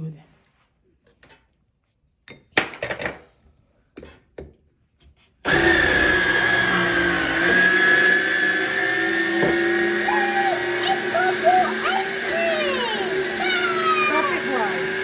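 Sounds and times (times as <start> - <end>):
small electric motor whining: 5.5 - 15.0.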